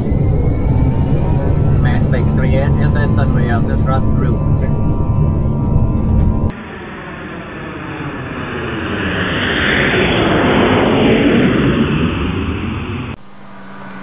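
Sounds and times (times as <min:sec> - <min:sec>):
quieter steady hum: 0:00.0 - 0:06.5, 0:13.2 - 0:14.0
airliner engine and airflow rush: 0:00.0 - 0:14.0.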